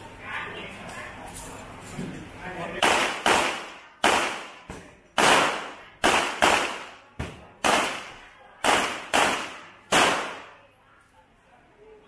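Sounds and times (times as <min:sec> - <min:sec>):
handgun shots with echo: 0:07.6 - 0:10.6.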